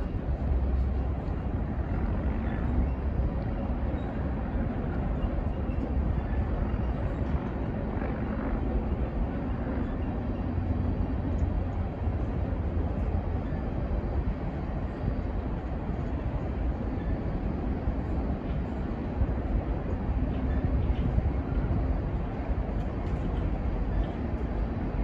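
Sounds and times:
freight train rolling on rails: 0.0s - 25.0s.

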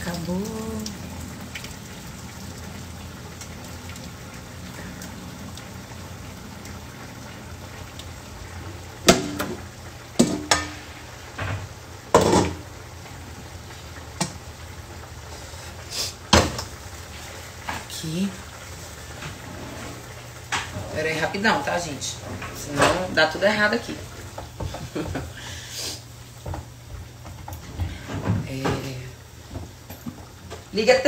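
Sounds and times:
low hum and hiss: 0.0s - 31.0s
pots and utensils clinking: 9.0s - 9.6s, 10.2s - 12.6s, 22.2s - 23.4s.

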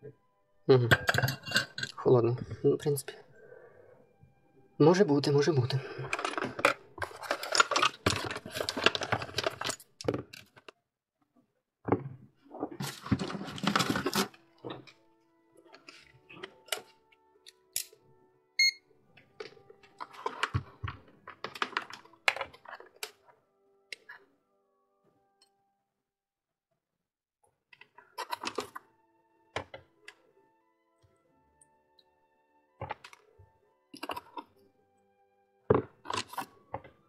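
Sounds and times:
faint background music: 0.0s - 10.8s, 11.8s - 26.0s, 27.6s - 37.0s
short electronic beep: 18.6s - 18.8s.

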